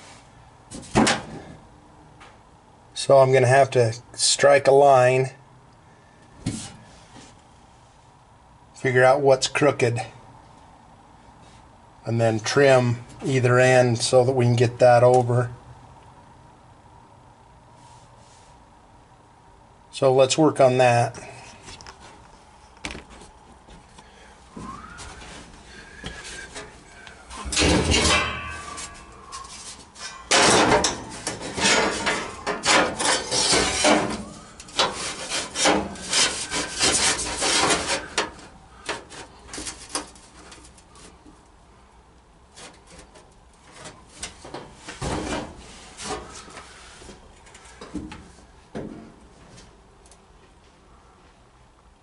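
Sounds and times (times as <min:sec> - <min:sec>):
paper rustling against metal: 0:27.4 - 0:41.2.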